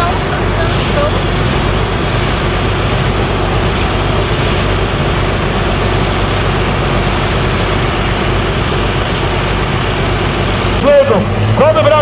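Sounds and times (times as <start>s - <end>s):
diesel engine running loudly: 0.0s - 12.0s.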